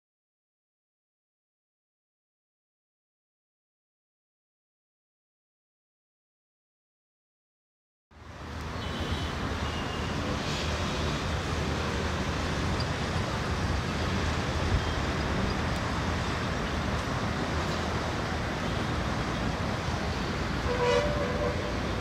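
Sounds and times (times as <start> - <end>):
traffic noise: 8.1 - 22.0
diesel locomotive engine rumble: 8.2 - 22.0
train horn: 20.6 - 22.0.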